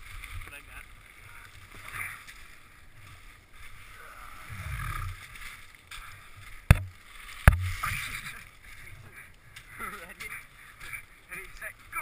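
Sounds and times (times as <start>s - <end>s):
sharp knocks: 6.7s - 7.8s.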